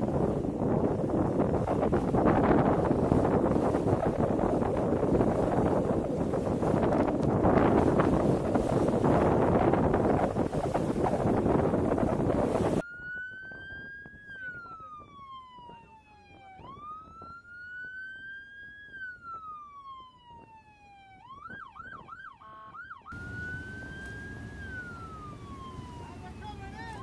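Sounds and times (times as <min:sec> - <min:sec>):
water noise: 0:00.0 - 0:12.8, 0:23.1 - 0:27.0
wind noise: 0:00.0 - 0:17.5, 0:23.1 - 0:27.0
electronic siren wailing: 0:12.8 - 0:27.0.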